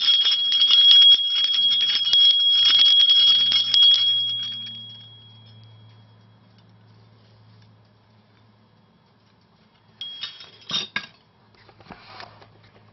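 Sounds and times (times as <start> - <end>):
small metal bell ringing: 0.0 - 6.8, 9.9 - 11.0.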